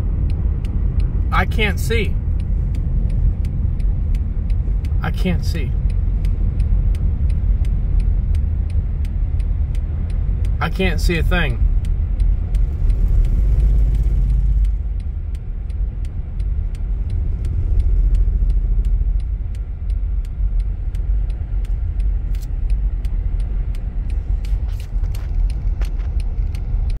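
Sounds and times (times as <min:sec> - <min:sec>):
light regular ticking: 0:00.0 - 0:27.0
road and wind noise in car: 0:00.0 - 0:27.0.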